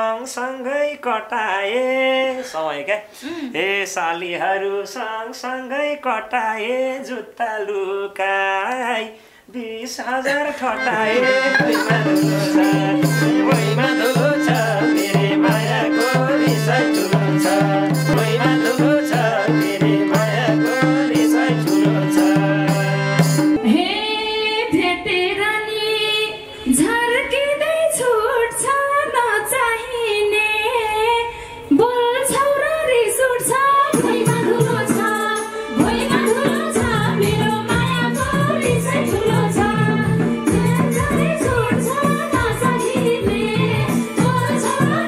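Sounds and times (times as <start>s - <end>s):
woman singing: 8.9s - 45.0s
held chords: 10.3s - 23.6s
hand drum rhythm: 10.9s - 23.6s, 35.8s - 45.0s.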